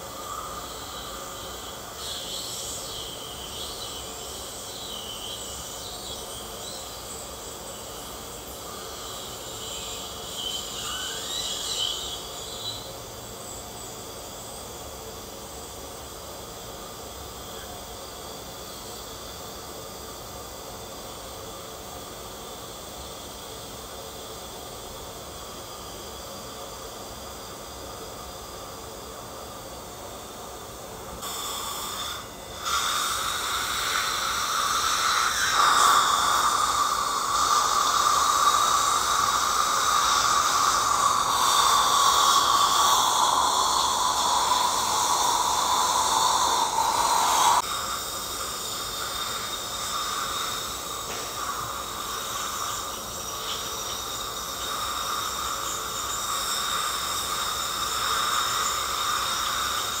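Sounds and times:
dental suction hissing: 0.0s - 14.7s, 31.1s - 60.0s
ultrasonic scaler whine: 0.0s - 60.0s.

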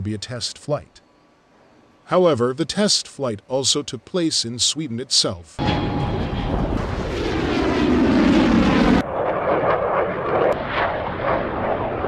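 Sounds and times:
fighter jet engine roar: 5.6s - 12.0s.

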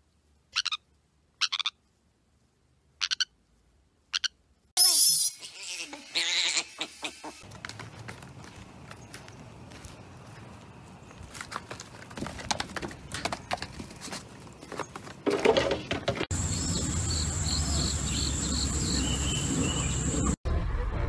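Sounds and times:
hooves tapping on wood: 7.4s - 10.0s, 11.2s - 15.2s
high-pitched whine with chirps: 16.3s - 20.4s.

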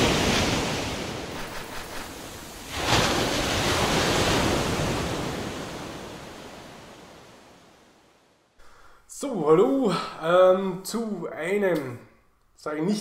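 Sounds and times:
waves washing and breaking: 0.0s - 8.6s.

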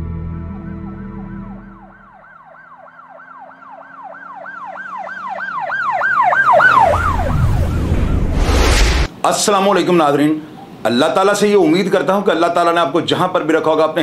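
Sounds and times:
music: 0.0s - 1.9s
siren-style yelp: 0.5s - 8.8s.

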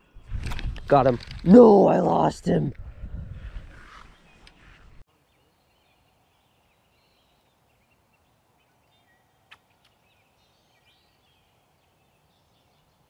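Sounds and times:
distant bird calls: 3.6s - 13.0s.

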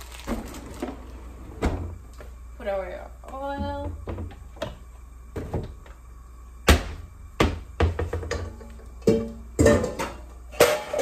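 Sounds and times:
kitchen items knocking: 6.7s - 11.0s.

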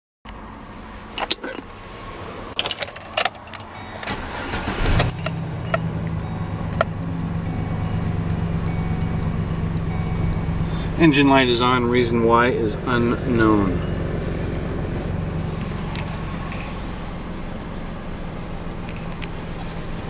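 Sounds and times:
truck engine starting and idling: 0.6s - 20.0s
ignition key jangling and clicking: 1.2s - 1.8s, 2.6s - 11.4s, 12.9s - 16.3s.

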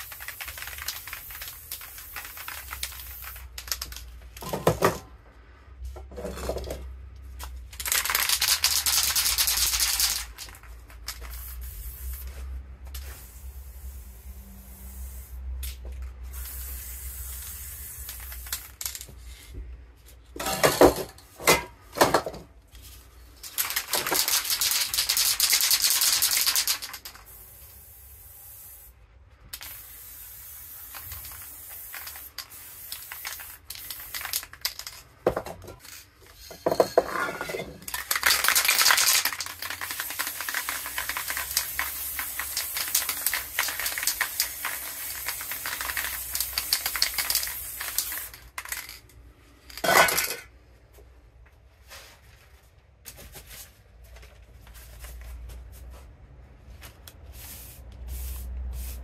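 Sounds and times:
spray paint cans hissing: 0.0s - 4.5s, 7.3s - 19.5s, 23.2s - 35.2s, 35.8s - 37.0s, 37.8s - 50.4s, 57.1s - 59.0s.

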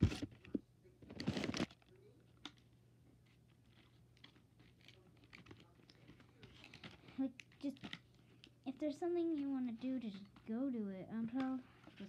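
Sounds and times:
scratchy paper rustle: 11.2s - 12.0s.

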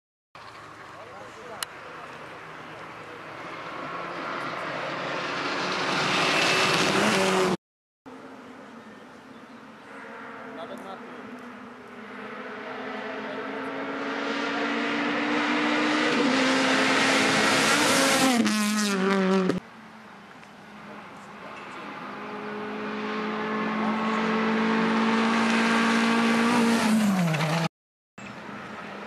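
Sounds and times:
rally car passing by: 2.9s - 7.6s, 9.8s - 19.6s, 21.4s - 27.7s
rally car engine revving: 3.4s - 7.6s, 9.9s - 19.6s, 21.8s - 27.7s.

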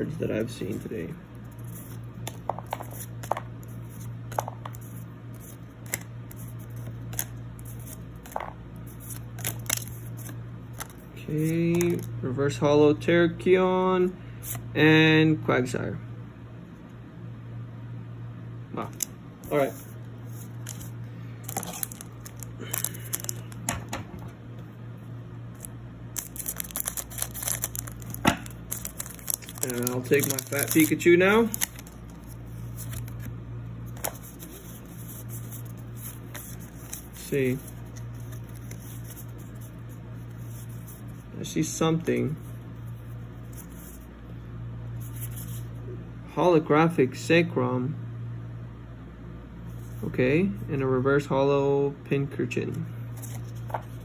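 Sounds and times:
steady low hum: 0.0s - 54.0s
cards clicking and snapping: 4.3s - 11.0s, 20.6s - 23.8s, 25.6s - 32.0s
foil wrapper crinkling: 20.5s - 23.7s, 25.6s - 33.3s.

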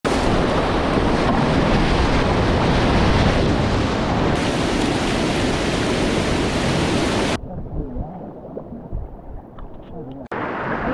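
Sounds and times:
wind buffeting microphone: 0.1s - 10.0s
whitewater rapids rushing: 4.4s - 7.4s.

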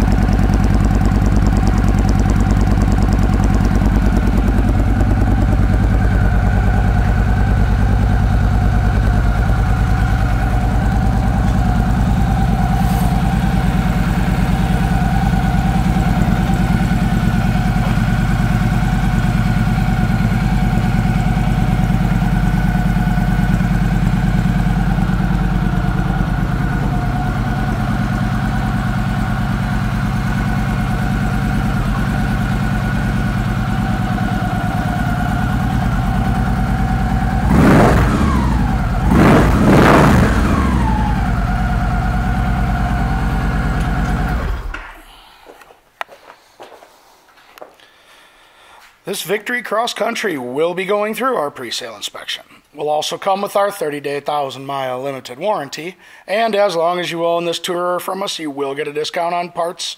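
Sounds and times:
motorcycle engine idling: 0.0s - 45.0s.

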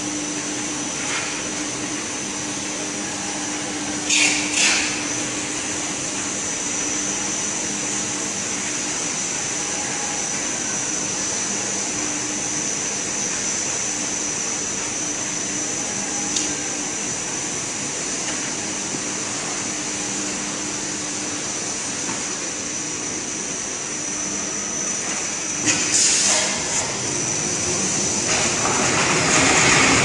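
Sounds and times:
machine whirring with high whine: 0.0s - 30.0s
loud hissing bursts: 25.6s - 26.9s.

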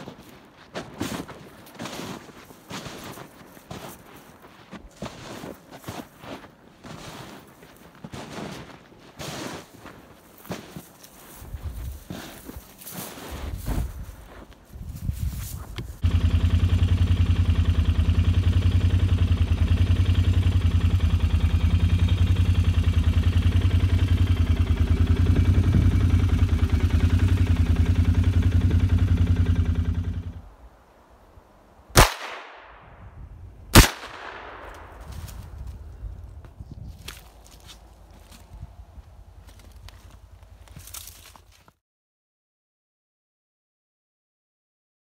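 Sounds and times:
vehicle engine pulsing: 15.8s - 30.6s
gunshots with ringing echo: 32.0s - 33.1s, 33.7s - 35.1s.

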